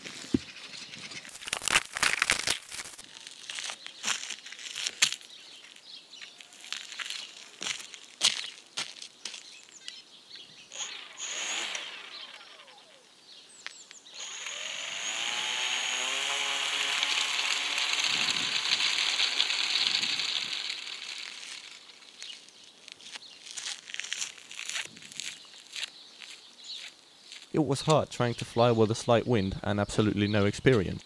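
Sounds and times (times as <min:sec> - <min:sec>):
electric motor and propeller whine: 0:10.7 - 0:13.2, 0:14.1 - 0:22.5.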